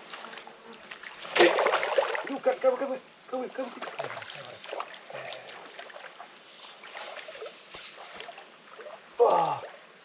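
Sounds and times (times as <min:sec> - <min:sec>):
river water splashing and trickling: 0:00.0 - 0:10.0.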